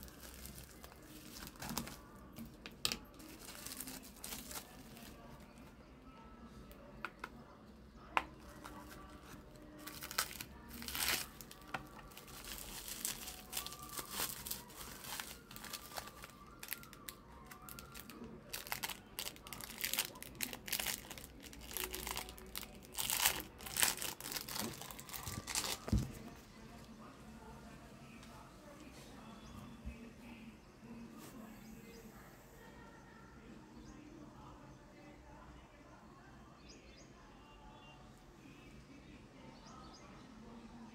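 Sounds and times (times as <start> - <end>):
bubble wrap crinkling: 0.0 - 5.7, 8.4 - 26.4.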